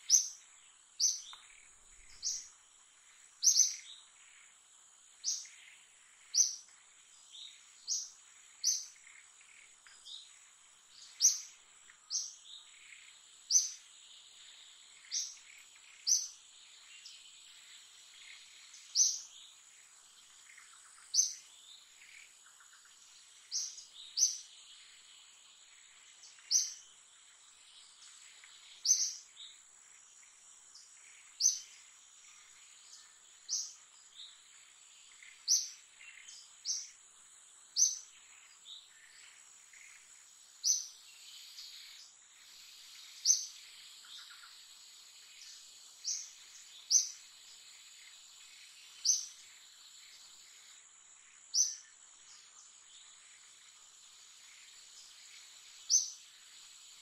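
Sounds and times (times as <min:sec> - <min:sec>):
insect whine: 0:00.0 - 0:57.0.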